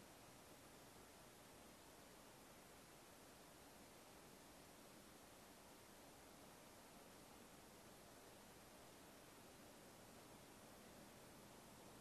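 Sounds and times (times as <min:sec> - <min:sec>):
faint steady hiss: 0:00.0 - 0:12.0.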